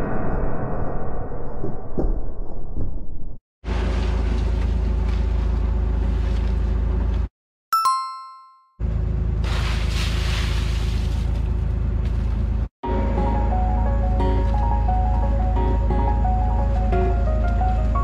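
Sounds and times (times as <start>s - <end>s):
bright chime sound effect: 7.8s - 8.8s.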